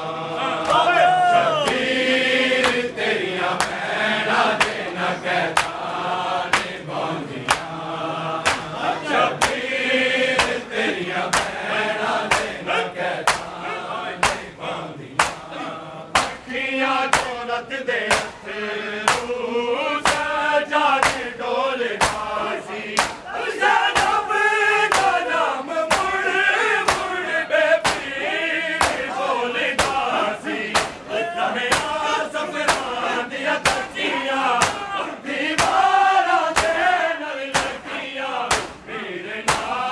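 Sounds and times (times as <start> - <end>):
crowd chanting: 0.0 - 39.9
palms slapping chests: 2.6 - 3.0, 3.6 - 3.9, 4.5 - 7.8, 8.4 - 12.6, 13.2 - 13.6, 14.2 - 14.6, 15.2 - 19.4, 20.0 - 20.4, 21.0 - 21.3, 22.0 - 23.3, 23.9 - 24.3, 24.9 - 39.8.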